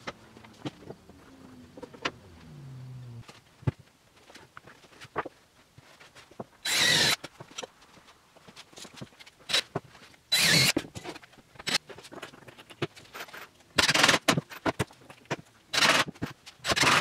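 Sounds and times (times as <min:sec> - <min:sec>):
impact driver driving screws: 0:10.3 - 0:10.8, 0:15.7 - 0:17.0.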